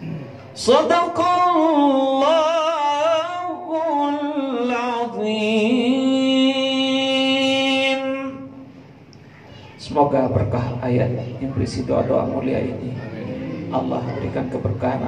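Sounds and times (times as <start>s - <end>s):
man chanting into a microphone: 0.5s - 8.7s.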